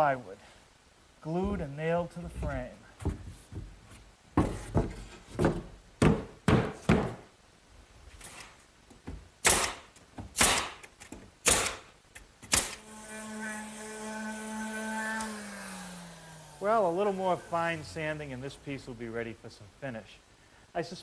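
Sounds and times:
nail gun firing: 9.4s - 12.8s
power sander humming: 12.8s - 18.1s.

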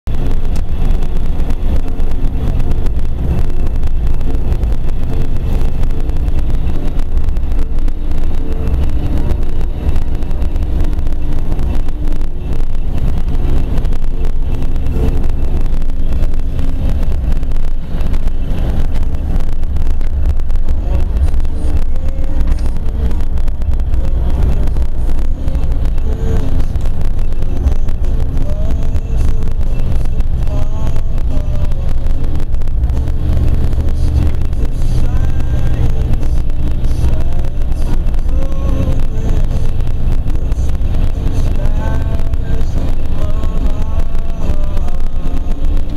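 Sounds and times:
car engine and tyre rumble: 0.0s - 45.9s.

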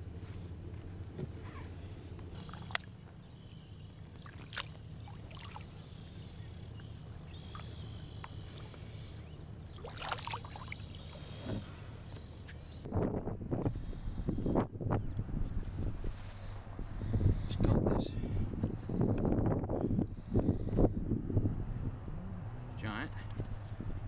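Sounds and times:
steady low hum: 0.0s - 24.0s
water splashing and sloshing: 2.1s - 3.2s, 3.9s - 11.9s.

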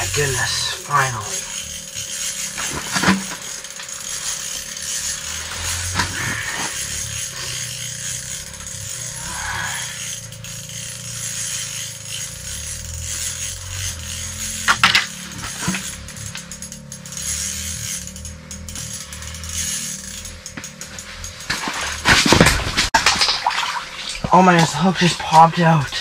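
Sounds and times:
fishing reel whirring: 0.0s - 22.5s, 23.4s - 26.0s
constant hiss and hum: 0.0s - 26.0s
rod and reel knocks: 10.0s - 24.7s.

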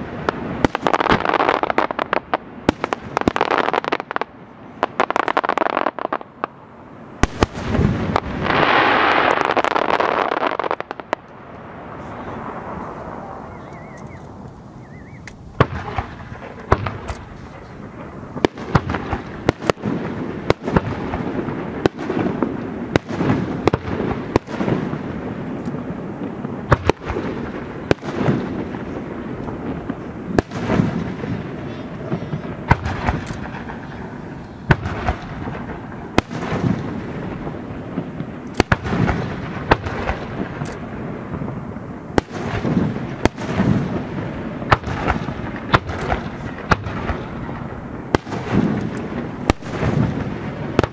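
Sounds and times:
fireworks bursting with sharp bangs: 0.0s - 50.9s.

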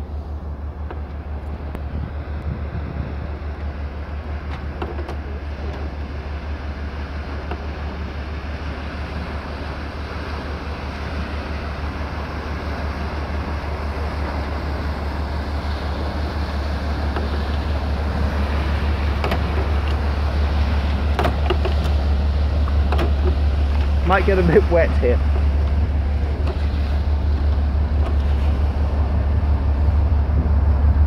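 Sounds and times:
bow wave rushing: 0.0s - 31.0s
ship engine throb: 0.0s - 31.0s
wind noise on microphone: 1.5s - 3.6s, 25.6s - 31.0s.

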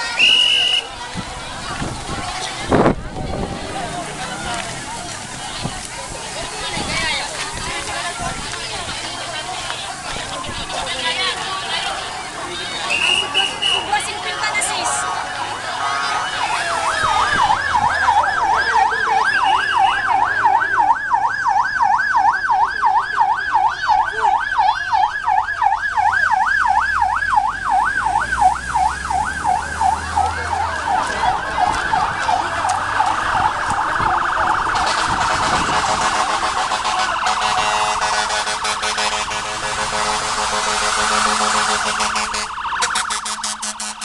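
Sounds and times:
fire truck siren warbling: 12.9s - 44.0s.

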